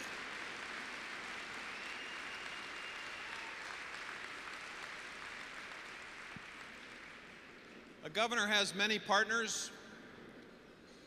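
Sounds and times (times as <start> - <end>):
audience applauding: 0.0 - 7.6.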